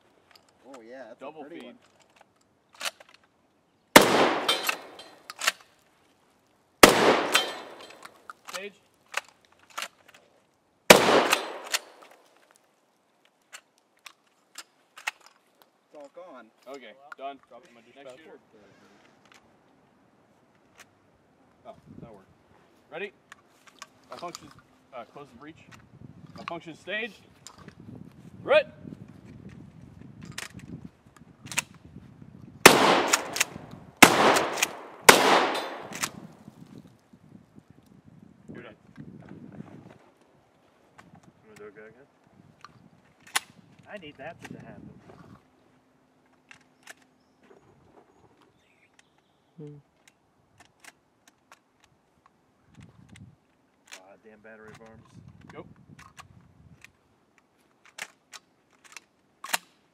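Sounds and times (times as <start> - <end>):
shotgun shot echoing: 4.0 - 5.2, 6.8 - 8.0, 10.9 - 12.0, 32.6 - 36.2
shotgun slide clacks: 4.0 - 5.7, 6.8 - 10.2, 10.9 - 12.2, 32.7 - 36.3, 57.8 - 59.8.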